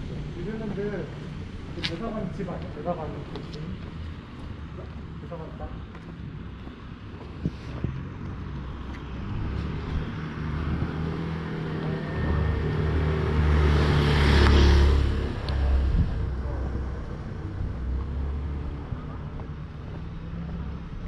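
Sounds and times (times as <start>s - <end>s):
car driving past: 7.7s - 20.9s.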